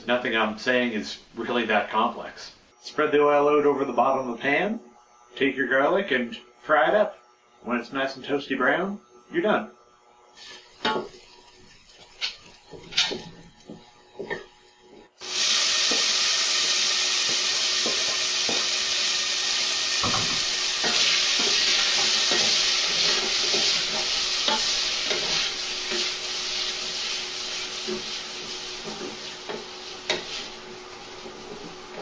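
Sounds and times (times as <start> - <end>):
garlic sizzling in oil: 10.3 - 32.0
utensil tapping and scraping pan: 11.9 - 14.5, 20.0 - 32.0.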